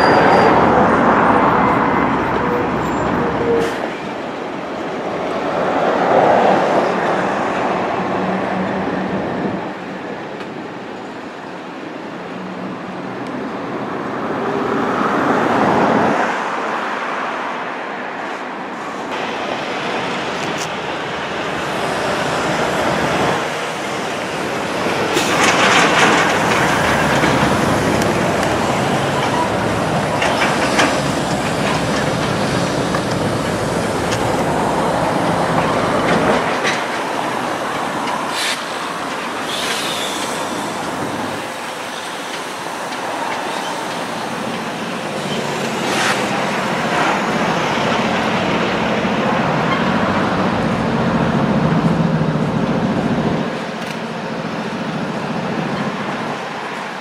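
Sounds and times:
rumble of train cars: 0.0s - 57.0s
train wheels clattering over rail joints: 21.5s - 50.3s.

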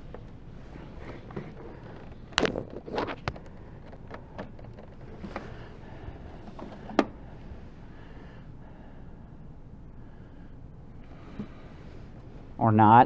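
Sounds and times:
equipment clicks and knocks: 1.1s - 5.6s, 6.4s - 7.2s.

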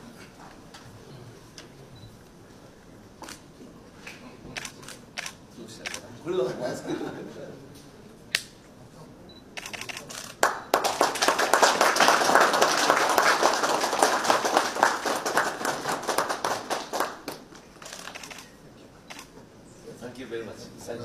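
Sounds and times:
small group applauding: 9.9s - 18.4s.

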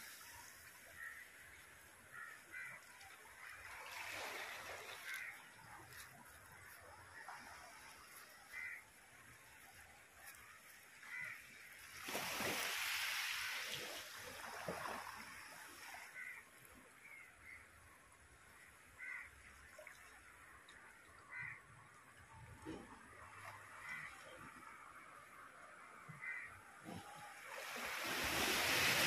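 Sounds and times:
sea waves washing over rocks: 27.3s - 29.0s.

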